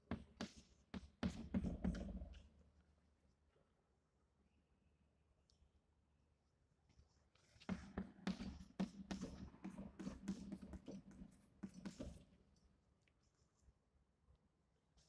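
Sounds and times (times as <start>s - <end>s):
chalk tapping and scraping on blackboard: 0.0s - 2.4s, 7.4s - 12.4s.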